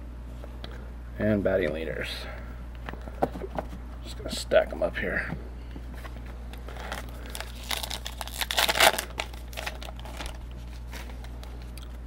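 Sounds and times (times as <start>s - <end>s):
wrapper crinkling and tearing: 6.6s - 11.8s.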